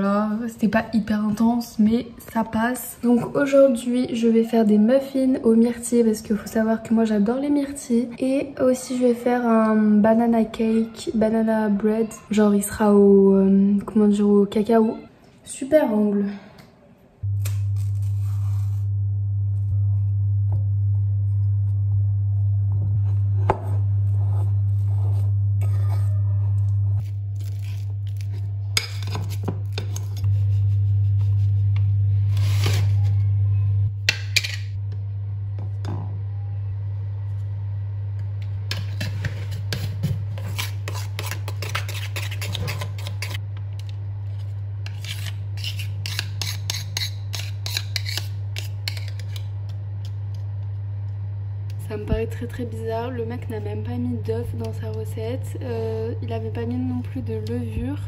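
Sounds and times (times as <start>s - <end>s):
low steady hum: 17.2s - 58.0s.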